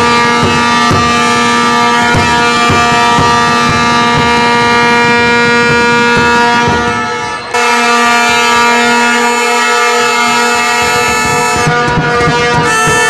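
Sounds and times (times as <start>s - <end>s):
regular drum beat: 0.0s - 7.1s, 10.7s - 13.0s
steady horn-like tone: 0.0s - 13.0s.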